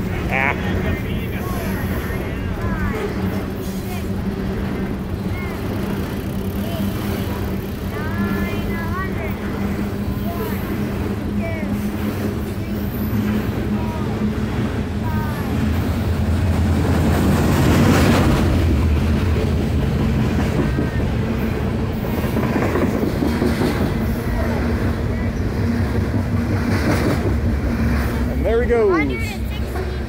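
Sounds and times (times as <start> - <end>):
freight train wheels rumbling on rail: 0.0 - 30.0.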